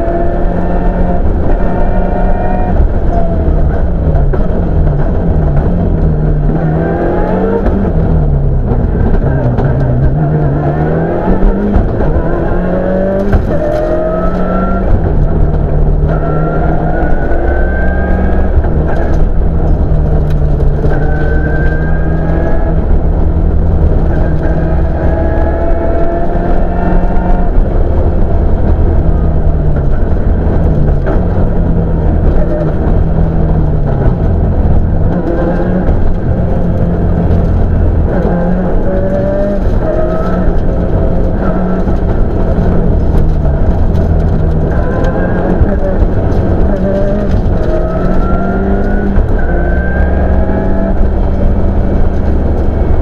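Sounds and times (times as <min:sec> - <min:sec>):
rally car engine revving: 0:00.0 - 0:53.0.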